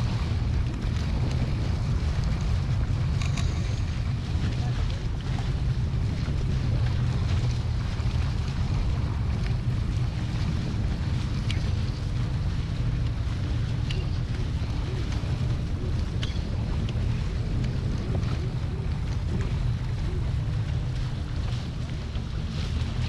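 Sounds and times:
water rushing along hulls: 0.0 - 23.0
wind buffeting microphone: 0.0 - 23.0.

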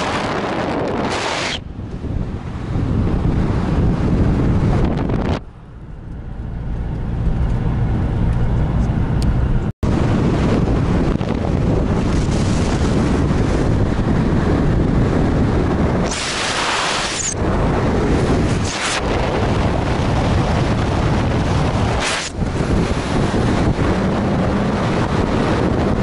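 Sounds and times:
car driving at speed: 0.0 - 26.0
wind buffeting microphone: 0.0 - 26.0
hissing rush: 16.0 - 17.5.

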